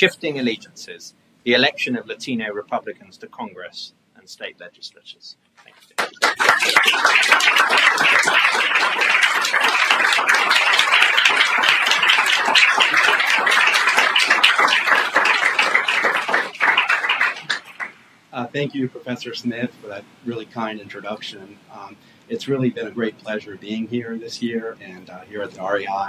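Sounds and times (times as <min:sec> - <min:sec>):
audience applauding: 0:05.7 - 0:18.0.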